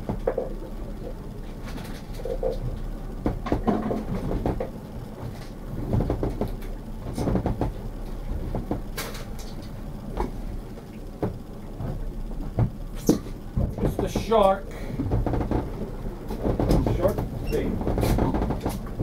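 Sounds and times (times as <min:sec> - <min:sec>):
fishing gear knocking and rattling: 0:00.0 - 0:19.0
low rumble of wind and water: 0:00.0 - 0:19.0.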